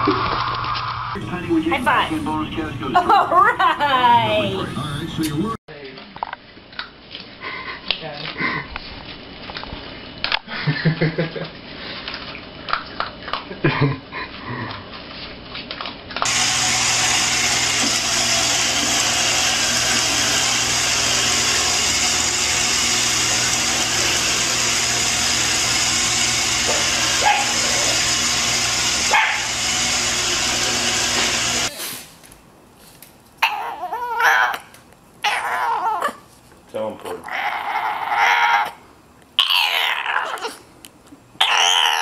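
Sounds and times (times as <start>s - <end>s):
robot vacuum running: 16.2s - 31.7s.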